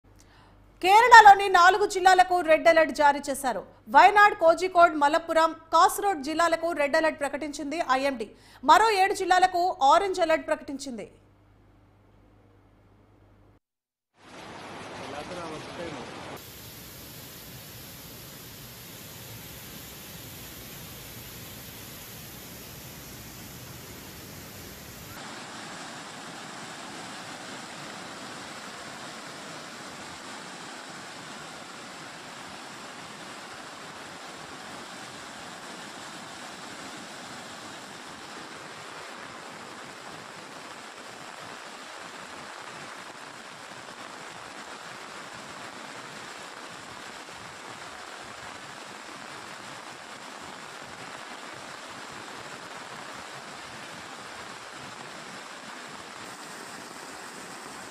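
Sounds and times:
floodwater rushing in river: 14.2s - 57.9s.

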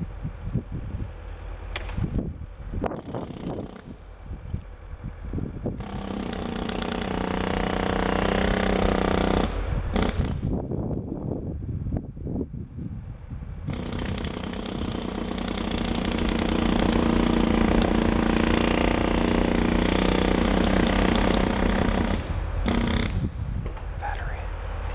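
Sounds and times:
low steady rumble: 0.0s - 24.9s
jackhammer breaking brick: 5.8s - 10.5s, 13.7s - 23.2s.

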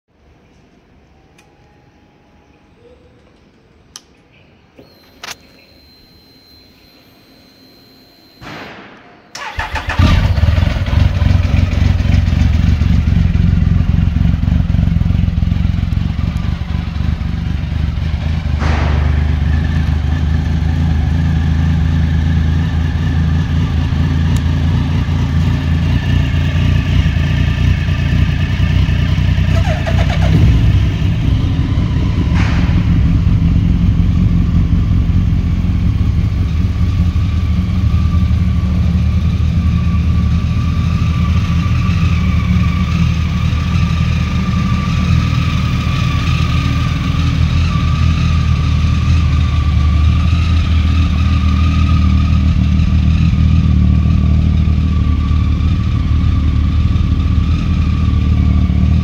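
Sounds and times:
motorcycle starter cranking: 9.3s - 12.4s, 29.3s - 33.7s
motorcycle engine idling: 9.4s - 59.0s.

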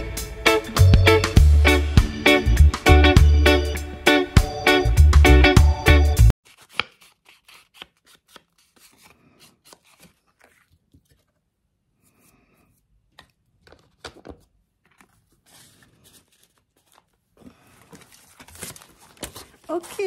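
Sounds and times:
background music: 0.0s - 6.3s
paper cards rustling: 6.4s - 11.5s, 13.0s - 20.0s.

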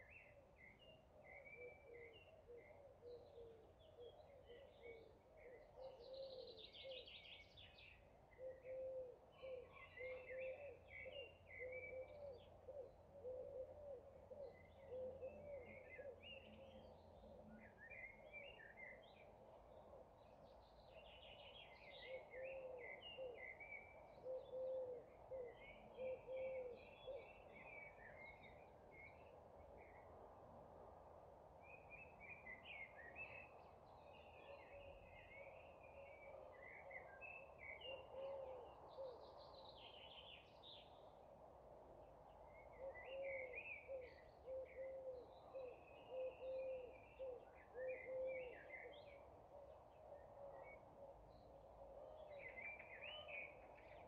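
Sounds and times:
songbirds chirping: 0.0s - 54.0s
bird low call: 42.6s - 51.2s.

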